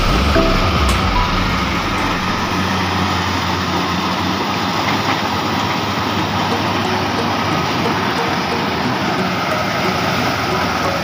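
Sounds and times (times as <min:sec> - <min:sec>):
combine harvester running: 0:00.0 - 0:11.0.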